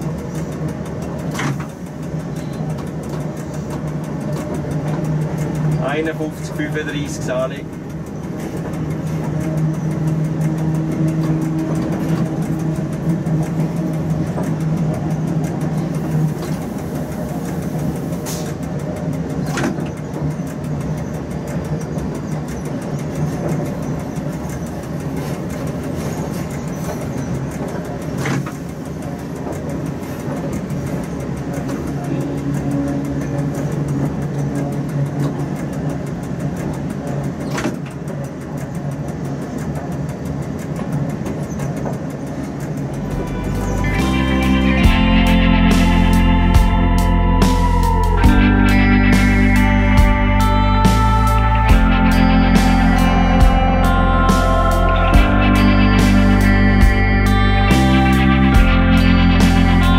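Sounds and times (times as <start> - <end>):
wheels clicking over rail joints: 0.0 - 44.7
locomotive cab hum: 0.0 - 59.9.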